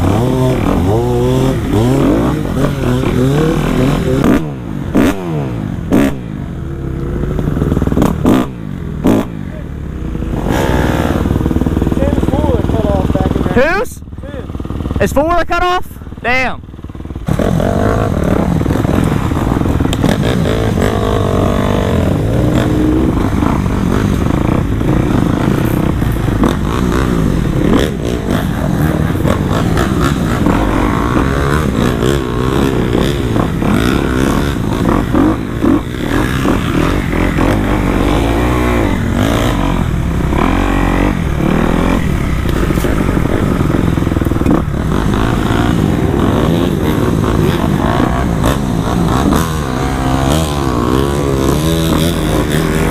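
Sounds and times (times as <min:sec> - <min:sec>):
dirt bike engine revving: 0:00.0 - 0:52.9.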